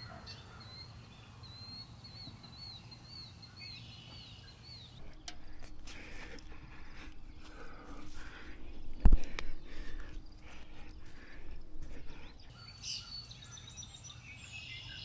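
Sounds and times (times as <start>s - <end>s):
bird singing whistled notes: 0.3s - 5.3s, 12.2s - 15.0s
low outdoor rumble: 5.0s - 12.5s.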